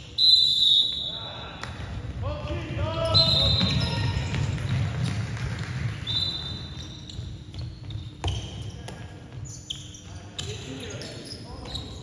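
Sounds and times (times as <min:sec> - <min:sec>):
ball bouncing on hard floor: 0:03.5 - 0:06.0, 0:06.8 - 0:09.1.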